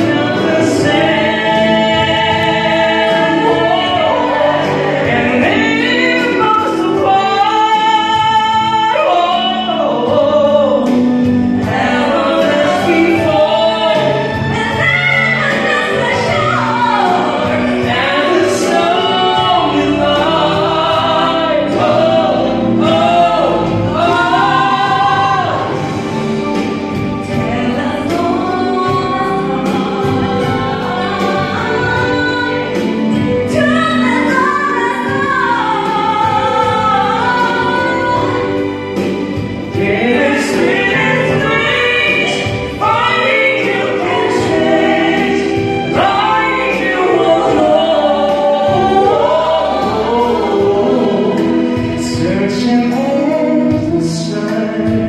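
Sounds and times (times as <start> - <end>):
man singing: 0.0 - 14.9, 39.7 - 55.0
accompaniment track: 0.0 - 55.0
woman singing: 0.0 - 55.0.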